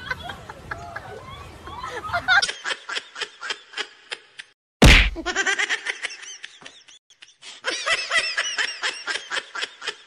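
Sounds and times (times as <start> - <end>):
high-pitched laughter: 0.0 - 4.5
loud thump: 4.8 - 5.3.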